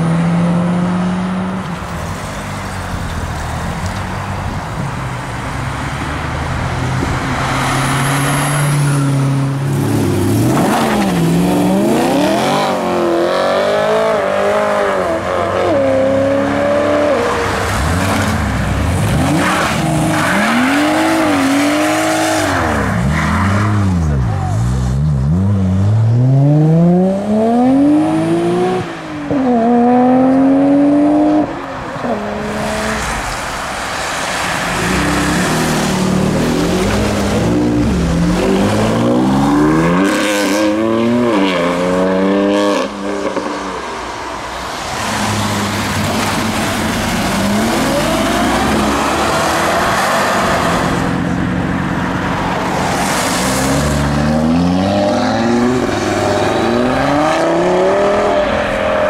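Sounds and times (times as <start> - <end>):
car engines revving: 0.0 - 59.0
tyres hissing on wet road: 32.5 - 37.4.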